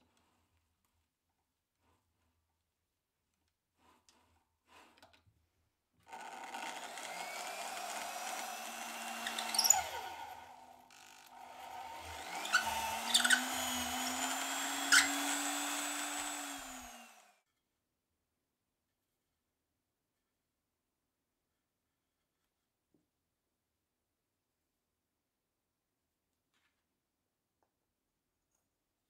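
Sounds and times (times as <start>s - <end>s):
electric drill boring wood: 6.1s - 17.4s.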